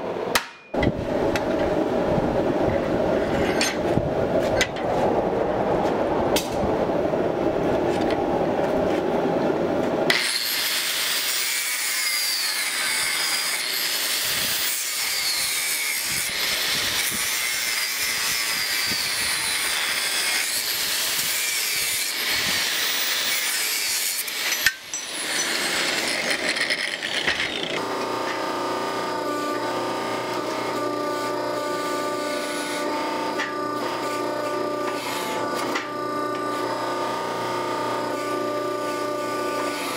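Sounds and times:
low steady machine noise: 0:00.0 - 0:39.9
angle grinder cutting steel: 0:10.1 - 0:39.9.

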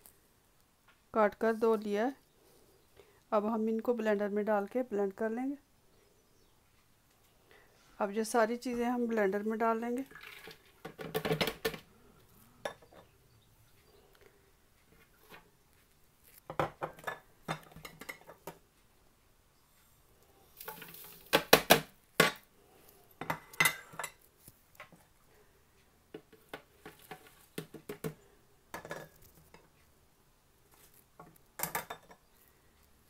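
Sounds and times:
rush of something poured: 0:10.1 - 0:10.6
plates and spoons clattering on jar: 0:12.6 - 0:13.1, 0:16.5 - 0:18.6, 0:23.2 - 0:24.2, 0:28.7 - 0:29.7, 0:31.6 - 0:32.3.

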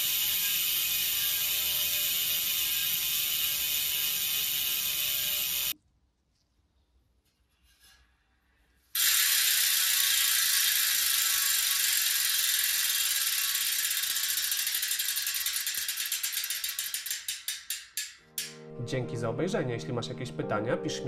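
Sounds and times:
bike freehub buzzing: 0:00.0 - 0:05.8, 0:09.0 - 0:18.5.

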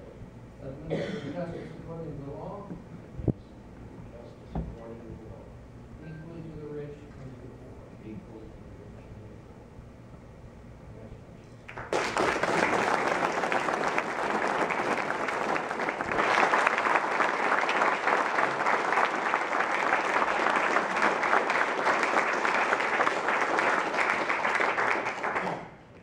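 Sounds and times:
audience applauding: 0:11.7 - 0:25.8.

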